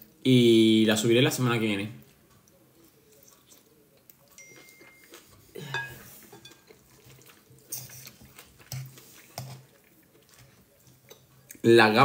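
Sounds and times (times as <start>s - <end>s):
fork clinking in salad bowl: 4.3s - 9.6s.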